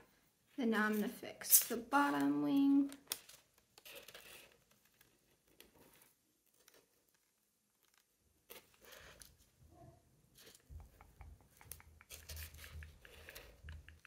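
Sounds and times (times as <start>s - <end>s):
paper rustling and crinkling: 2.2s - 9.6s.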